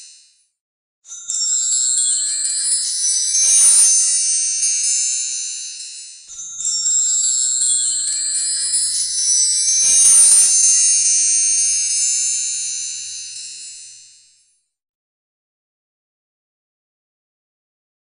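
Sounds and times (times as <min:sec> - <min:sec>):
shimmering chime: 0:02.4 - 0:14.4
rising glide: 0:09.7 - 0:12.2.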